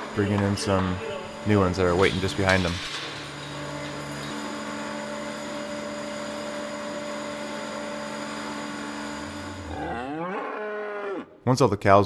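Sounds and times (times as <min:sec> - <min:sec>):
milking machine hum: 0:00.0 - 0:10.8
cow mooing: 0:09.6 - 0:11.4.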